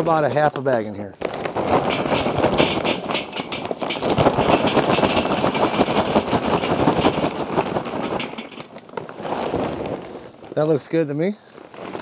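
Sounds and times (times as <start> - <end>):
charcoal briquets clattering: 1.2 - 11.0.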